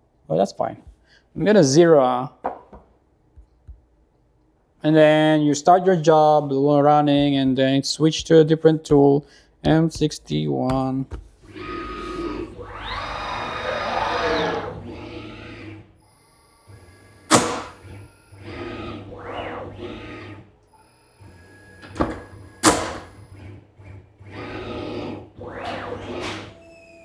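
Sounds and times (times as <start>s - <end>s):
motor whine: 11.4s - 27.0s.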